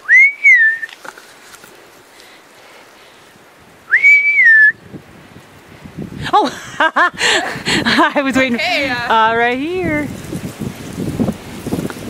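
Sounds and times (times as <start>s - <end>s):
person whistling loud notes: 0.0s - 0.9s, 3.9s - 4.8s.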